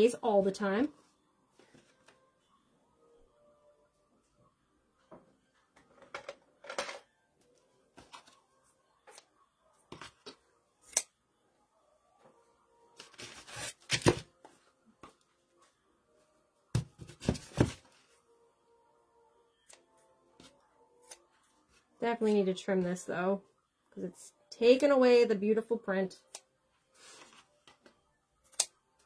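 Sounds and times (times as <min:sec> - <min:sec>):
scissors snipping: 0:28.5 - 0:28.7.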